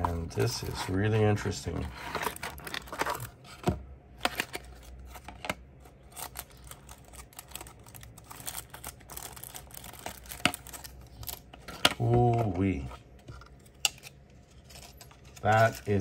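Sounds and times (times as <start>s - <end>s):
plastic packaging crackling: 6.0s - 12.8s, 13.8s - 16.0s.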